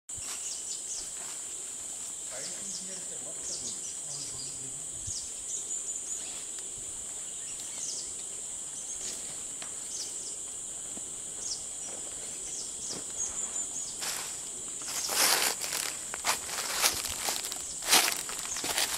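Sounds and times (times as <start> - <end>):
insect buzz: 0.1 - 18.9
high falling bird chirps: 14.9 - 18.8.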